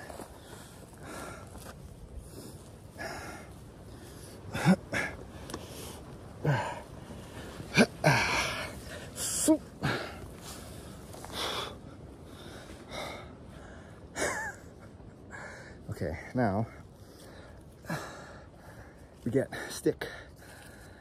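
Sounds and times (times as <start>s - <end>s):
man breathing hard and grunting: 7.7s - 10.2s.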